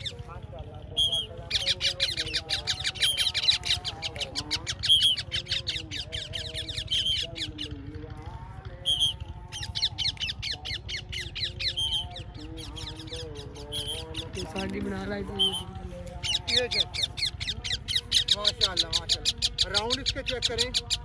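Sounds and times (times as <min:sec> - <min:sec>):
parakeets screeching: 0:00.0 - 0:07.9, 0:08.7 - 0:21.0.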